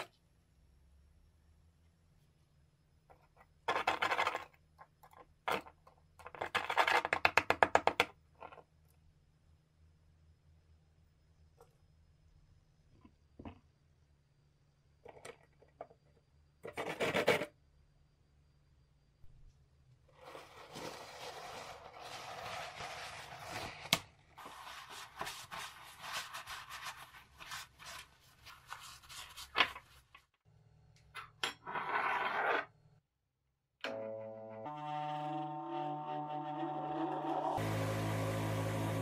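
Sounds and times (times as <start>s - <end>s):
paper towel rubbing metal: 24.4s - 29.6s.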